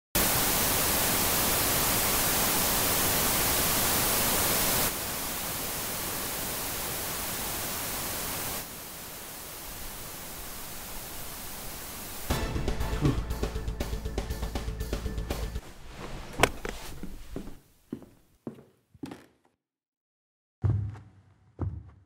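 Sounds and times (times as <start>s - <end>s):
television static hiss: 0.2s - 12.3s.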